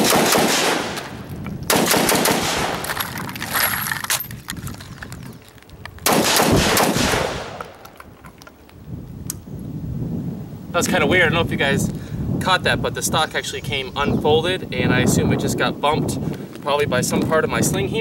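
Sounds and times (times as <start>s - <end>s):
rifle shots with echo: 0.0s - 3.0s, 6.0s - 7.9s.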